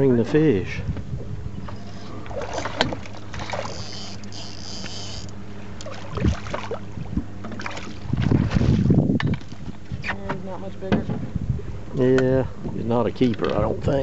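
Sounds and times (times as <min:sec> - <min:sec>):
boat engine idling: 0:00.2 - 0:08.1
water splashing: 0:01.8 - 0:09.0.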